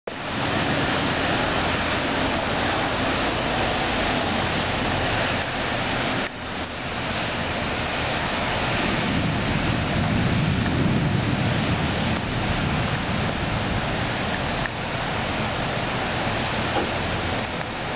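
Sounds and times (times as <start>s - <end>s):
heavy rain: 0.1s - 17.9s
low thunder rumble: 8.4s - 17.9s.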